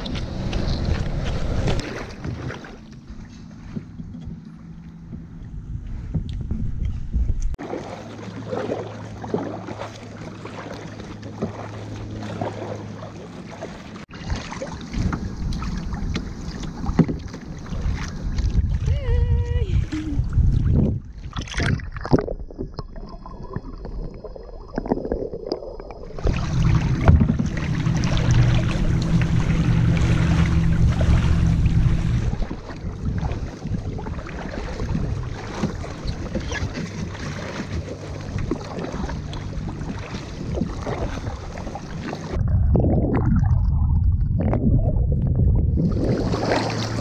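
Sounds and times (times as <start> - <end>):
kayak paddle splashing in water: 0.0 - 3.8, 7.6 - 19.0, 24.8 - 42.4, 45.8 - 47.0
wind buffeting microphone: 0.0 - 7.6, 14.2 - 21.8, 26.1 - 47.0.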